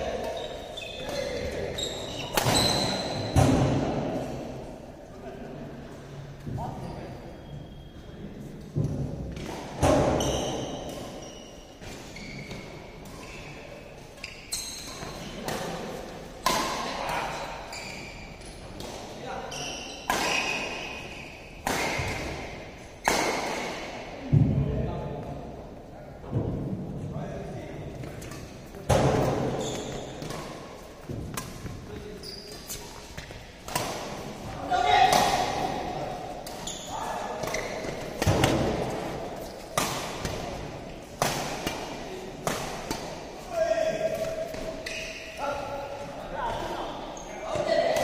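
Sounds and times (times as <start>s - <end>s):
shoes squeaking on court floor: 0.0s - 3.4s, 6.6s - 8.7s, 10.1s - 16.4s, 17.0s - 22.4s, 28.0s - 35.6s, 36.2s - 41.8s, 42.9s - 47.8s
rackets hitting shuttlecock: 2.2s - 4.2s, 14.6s - 17.4s, 19.9s - 24.5s, 28.0s - 43.4s.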